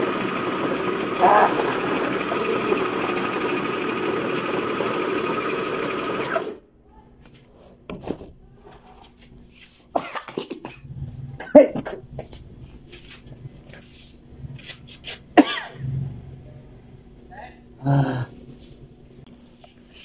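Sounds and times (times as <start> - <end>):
man coughing: 10.0 - 12.0, 15.4 - 15.8.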